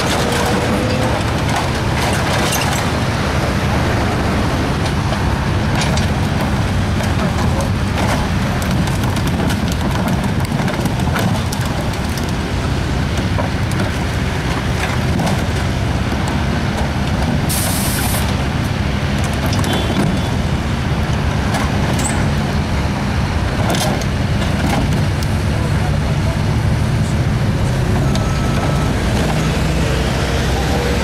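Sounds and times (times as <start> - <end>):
metal debris clanking and crunching: 0.0 - 3.2
diesel excavator engine running: 0.0 - 31.0.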